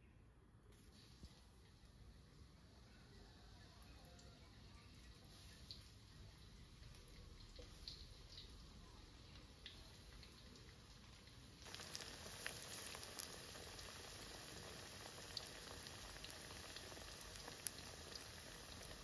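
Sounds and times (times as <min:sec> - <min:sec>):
oil sizzling in wok: 0:00.8 - 0:02.9, 0:03.5 - 0:19.0
oil popping and crackling: 0:05.6 - 0:19.0.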